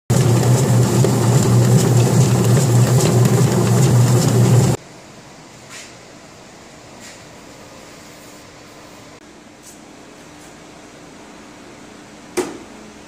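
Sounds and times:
dough mixer humming: 0.1s - 4.8s.

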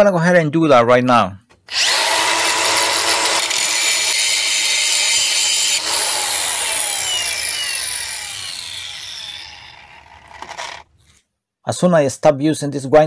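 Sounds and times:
angle grinder spinning down: 1.7s - 10.9s.

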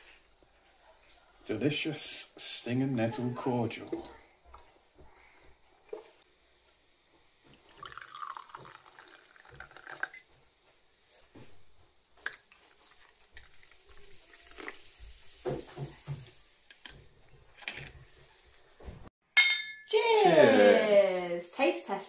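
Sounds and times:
liquid trickling into glass: 7.5s - 10.4s, 12.3s - 14.8s
soda fizzing hiss: 12.6s - 16.7s.

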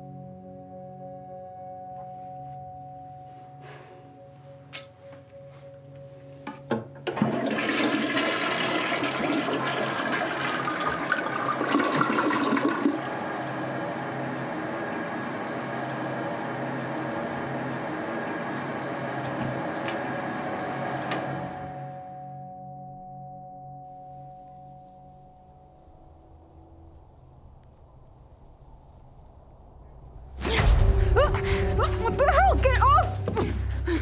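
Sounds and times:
toilet flushing water rush: 7.1s - 21.6s
toilet tank refilling hiss: 7.2s - 13.0s.

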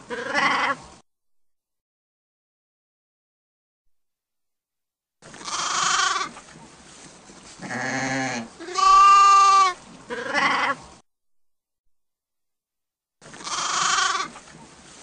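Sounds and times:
sheep bleating: 5.4s - 6.3s, 7.6s - 10.8s, 13.4s - 14.4s.

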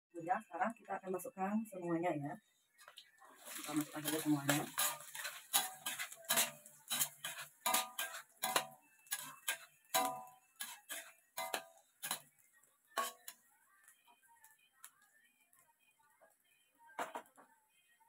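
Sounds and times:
metal spatula clanking on wok: 3.7s - 12.2s, 13.0s - 13.4s.

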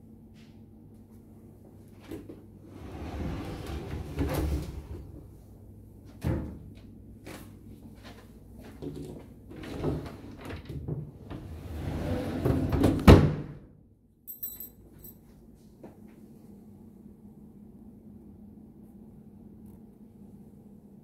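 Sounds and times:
sliding door running on track: 2.7s - 5.2s, 9.6s - 13.0s.

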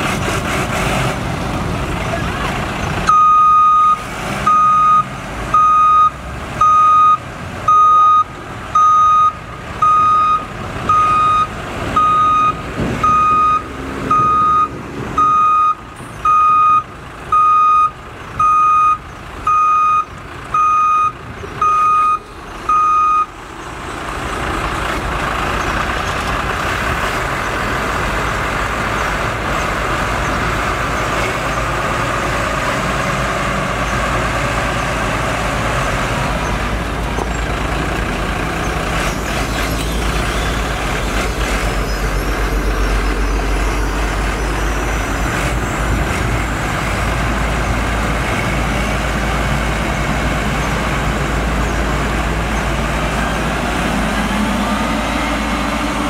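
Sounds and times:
diesel engine noise: 0.0s - 56.0s
reverse alarm beeping: 3.1s - 23.3s.

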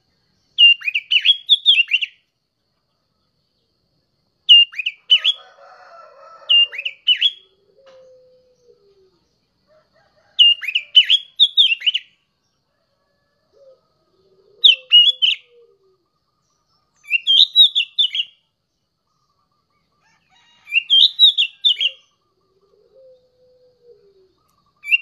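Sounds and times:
bird singing warbled phrases: 0.0s - 2.3s, 4.4s - 5.5s, 6.4s - 9.5s, 10.3s - 12.6s, 13.7s - 19.8s, 20.6s - 25.0s.

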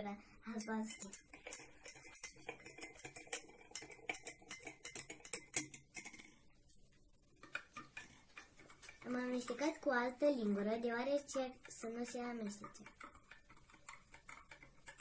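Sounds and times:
spoon clinking in a glass: 0.8s - 6.2s.

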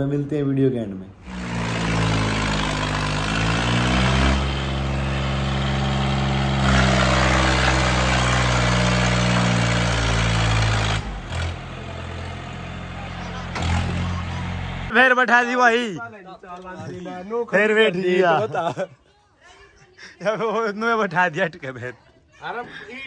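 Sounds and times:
tractor diesel engine revving: 1.2s - 14.9s.

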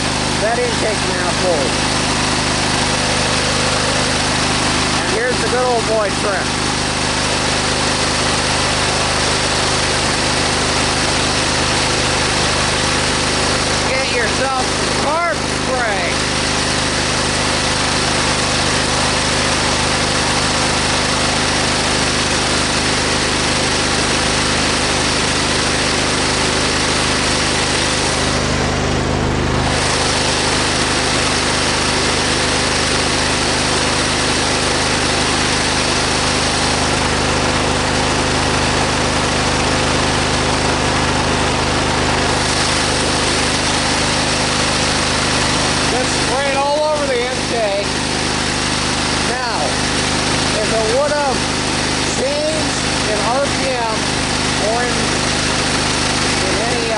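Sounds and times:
lawn tractor engine running: 0.0s - 56.9s.

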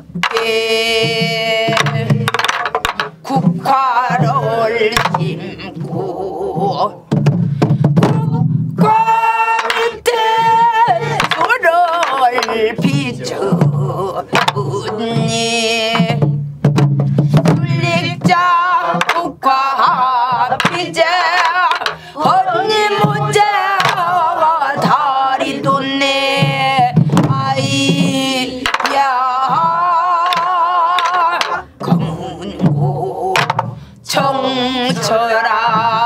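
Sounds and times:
voices singing with vibrato: 0.0s - 7.2s, 7.9s - 16.4s, 17.4s - 36.0s
barrel drum strokes: 0.0s - 36.0s.

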